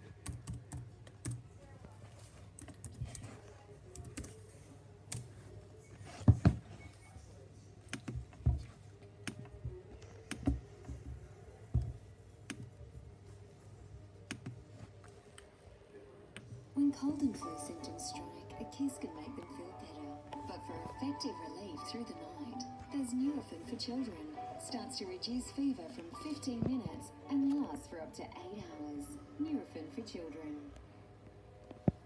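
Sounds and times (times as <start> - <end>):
typing on computer keyboard: 0.0 - 1.4, 3.9 - 4.4.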